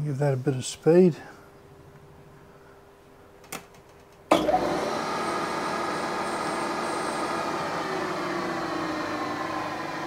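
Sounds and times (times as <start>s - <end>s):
milling machine spindle motor running: 4.3s - 10.0s.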